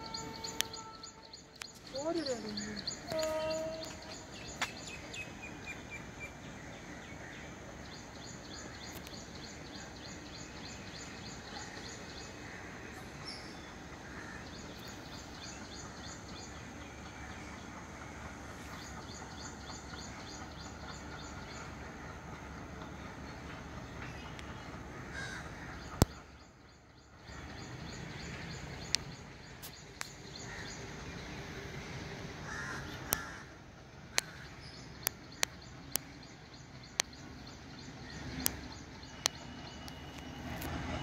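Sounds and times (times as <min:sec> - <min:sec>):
outdoor background noise: 0:00.0 - 0:41.0.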